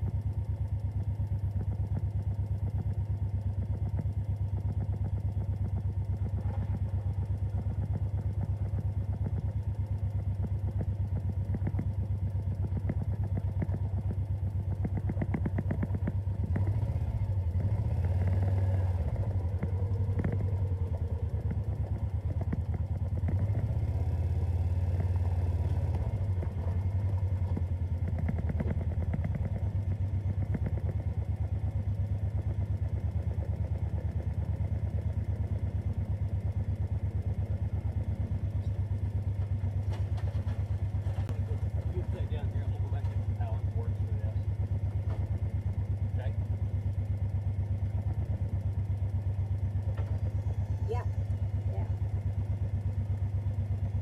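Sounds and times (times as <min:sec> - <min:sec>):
diesel engine idling: 0:00.0 - 0:54.0.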